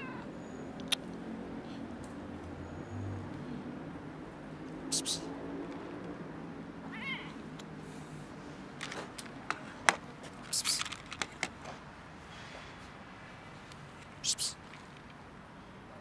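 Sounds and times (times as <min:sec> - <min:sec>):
cat meowing: 0:00.0 - 0:00.3, 0:06.9 - 0:07.4.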